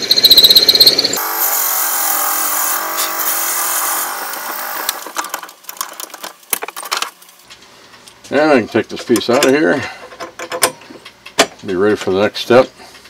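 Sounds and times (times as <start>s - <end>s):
wood lathe running: 0.0s - 5.5s.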